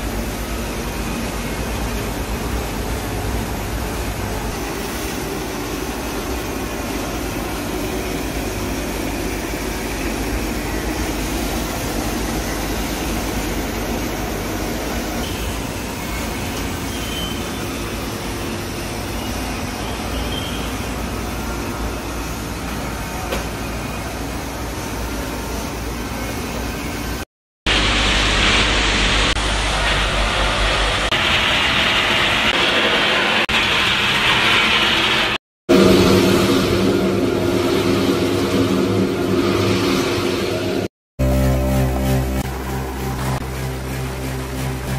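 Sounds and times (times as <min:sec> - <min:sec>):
factory machinery hum: 0:00.0 - 0:44.9
rushing air: 0:27.7 - 0:44.9.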